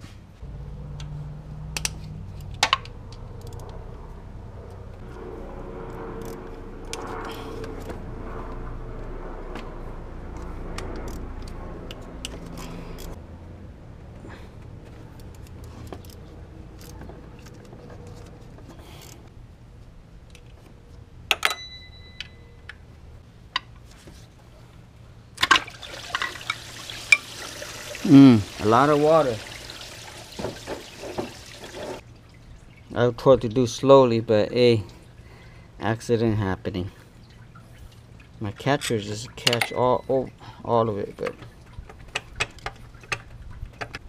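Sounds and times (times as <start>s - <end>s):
ringing metal clink: 21.4s - 22.7s
coolant pouring into a pan: 25.6s - 32.5s.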